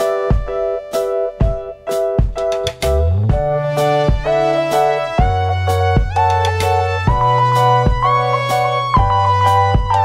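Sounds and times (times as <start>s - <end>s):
held chords: 0.0s - 10.0s
drum hits: 1.4s - 8.3s
low bass line: 2.8s - 10.0s.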